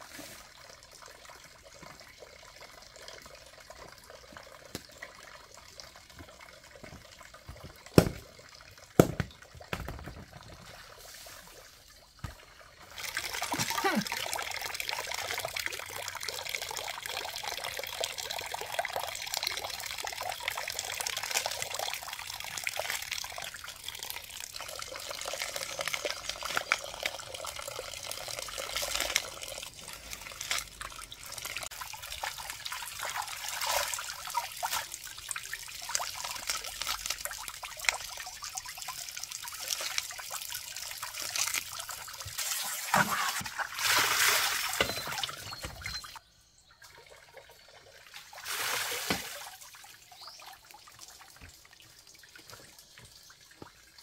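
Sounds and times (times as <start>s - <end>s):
water trickling: 0.0s - 54.0s
basin of water tipped out: 48.3s - 49.6s.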